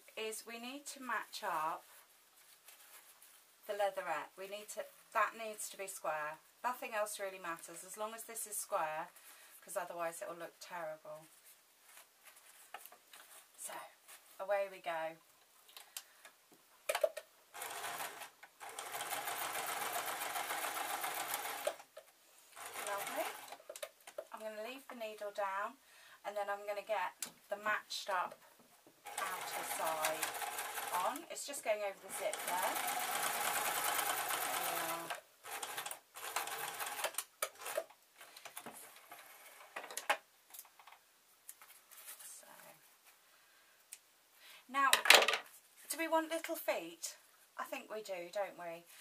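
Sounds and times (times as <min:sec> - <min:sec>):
sewing machine stitching: 0:17.6 - 0:21.9, 0:22.6 - 0:23.8, 0:29.1 - 0:31.2, 0:32.0 - 0:37.9.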